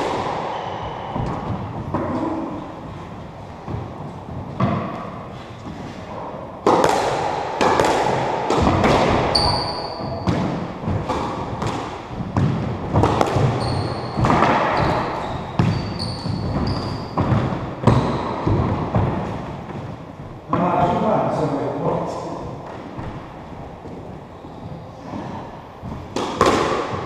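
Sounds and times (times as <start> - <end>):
ball slapping court walls: 0.0 - 21.1, 22.2 - 27.0
racket striking squash ball: 0.0 - 21.1, 25.0 - 27.0
shoes squeaking on wooden floor: 9.2 - 11.2, 13.3 - 20.4, 22.6 - 26.1.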